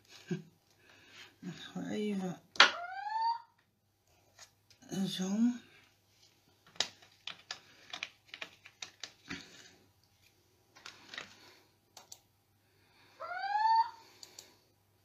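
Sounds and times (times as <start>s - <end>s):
plastic supplies clicking and tapping: 6.6s - 9.7s.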